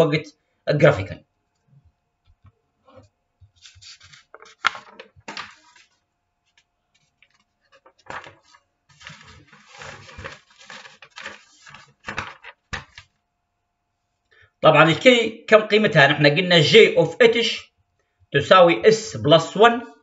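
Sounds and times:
paper flick: 3.5 - 6.0, 7.2 - 13.1
paper crackling and rustling: 3.5 - 13.2.

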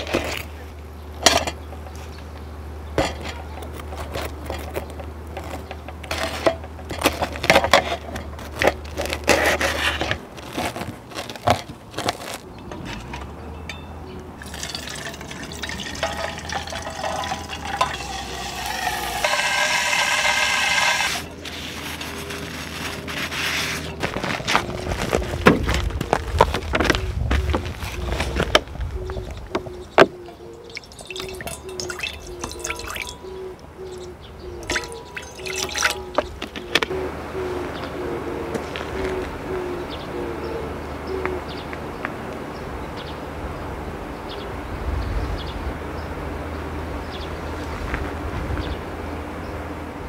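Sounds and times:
metal utensils clinking: 12.5 - 21.6, 30.7 - 33.3, 34.6 - 36.3
water sloshing in steel pan: 14.4 - 21.4, 30.6 - 33.3, 34.6 - 36.3.

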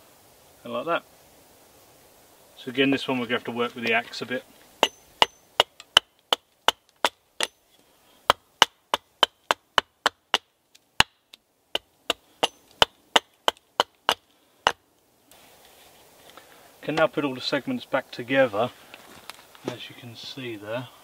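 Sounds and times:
faint rustle: 0.0 - 5.5, 7.6 - 8.3, 14.2 - 21.0
axe chopping wood: 4.8 - 7.6, 8.3 - 11.2, 11.8 - 14.8.

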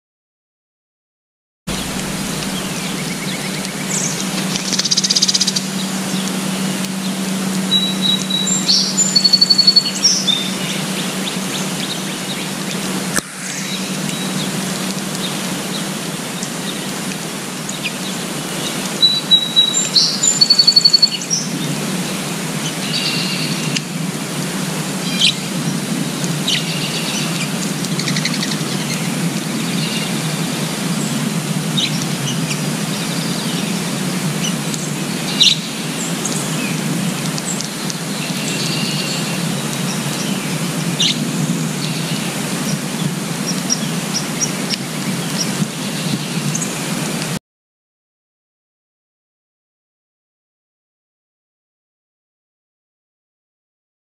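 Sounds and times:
songbirds chirping: 1.7 - 12.8, 31.8 - 47.0
outdoor background hiss: 1.7 - 47.4.

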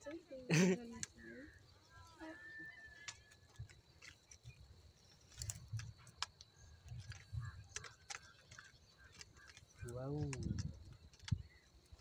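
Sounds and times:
handling clicks and rustles: 2.8 - 12.0.

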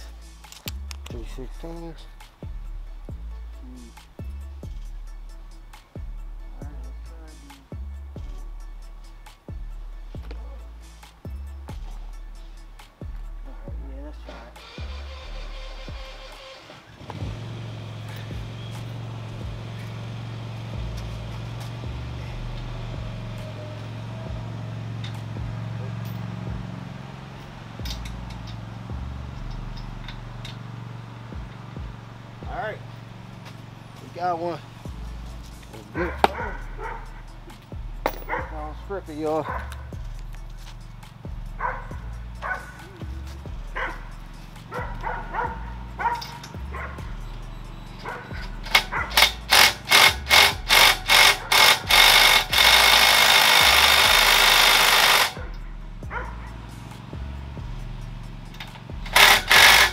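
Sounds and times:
steady low hum: 17.2 - 59.9
wrench clicking on lug nut: 48.0 - 55.6, 58.5 - 59.9.

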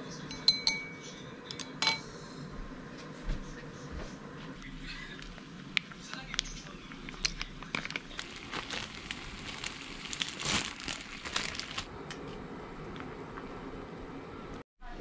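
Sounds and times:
ramen noodles boiling hard: 4.8 - 14.6
plastic packaging rustling: 7.1 - 13.5.

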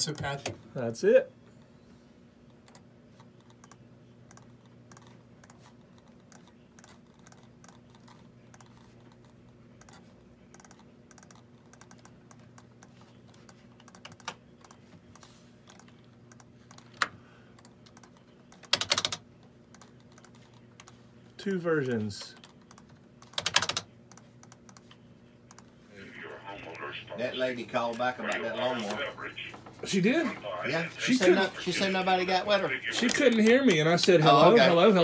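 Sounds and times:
low electrical hum: 0.0 - 35.0
computer keyboard typing: 2.6 - 21.0, 22.4 - 25.7, 31.7 - 34.2.

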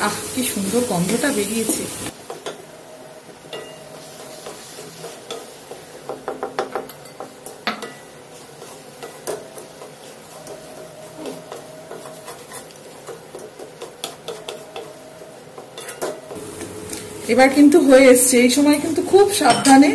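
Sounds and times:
wooden spatula scraping metal pan: 3.6 - 16.4
spatula knocking against pan: 4.4 - 8.1.

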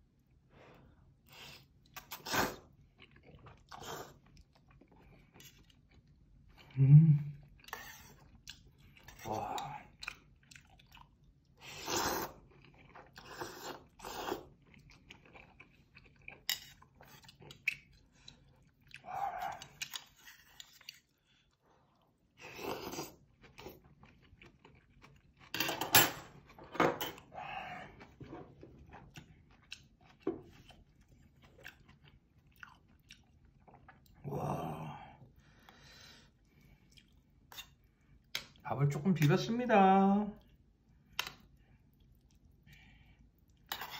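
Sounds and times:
person chewing: 1.2 - 25.6, 26.3 - 34.8, 35.5 - 38.6, 40.4 - 43.9
person slurping noodles: 1.3 - 2.7, 11.6 - 12.4, 13.1 - 14.6, 22.4 - 23.2.

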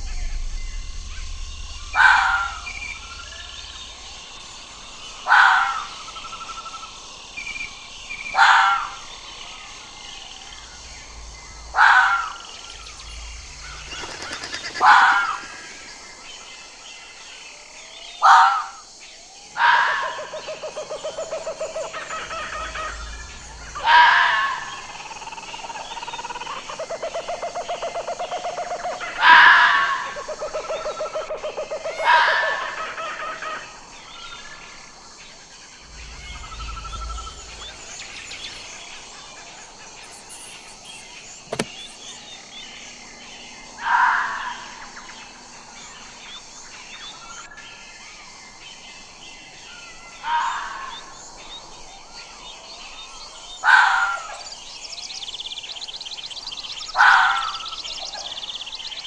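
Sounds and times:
fox stuttering chatter: 13.8 - 16.0.

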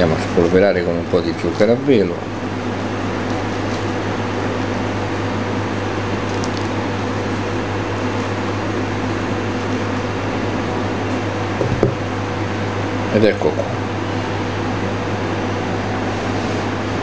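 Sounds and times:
kitchen machine fan humming: 0.0 - 17.0.

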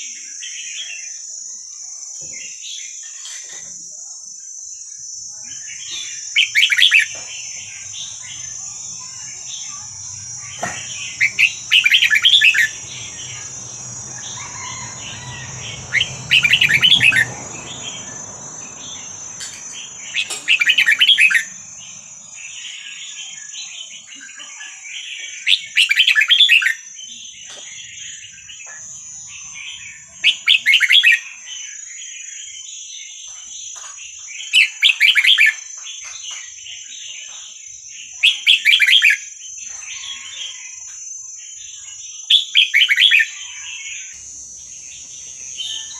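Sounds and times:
bird singing: 0.0 - 45.9
soft bird chattering calls: 9.5 - 13.7.

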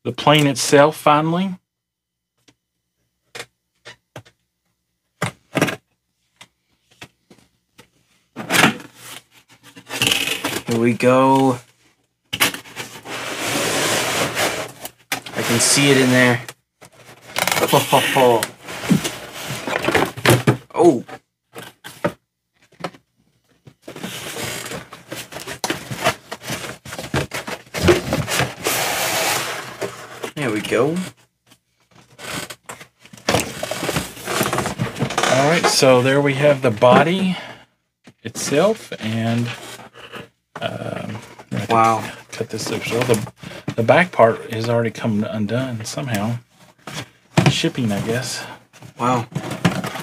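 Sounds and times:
cardboard packaging rustling: 12.4 - 20.6, 23.8 - 31.1, 31.9 - 37.4, 46.6 - 50.0.

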